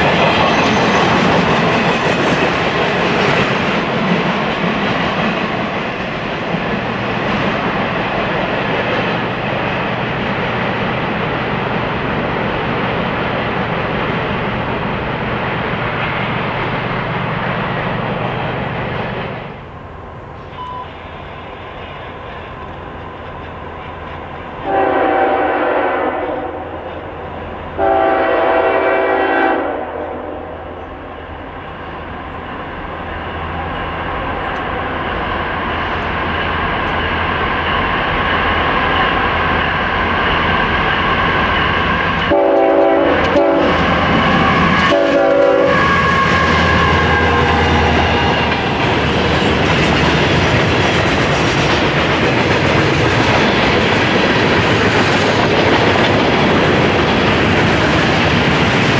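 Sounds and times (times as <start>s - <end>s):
locomotive engines and wheel noise: 0.0s - 24.7s, 30.8s - 58.9s
train air horn blasts: 24.6s - 26.8s, 27.8s - 30.8s, 42.3s - 48.5s.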